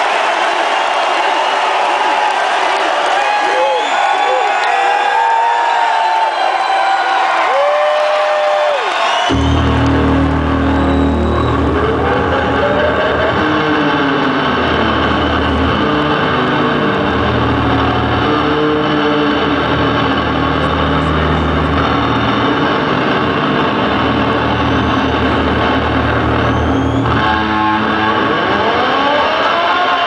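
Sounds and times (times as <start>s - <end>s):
distorted electric bass: 9.3s - 30.0s.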